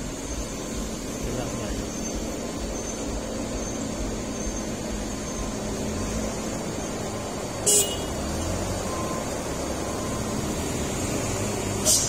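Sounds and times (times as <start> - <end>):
truck diesel engine running: 0.0 - 12.0
air brake hiss: 11.8 - 12.0.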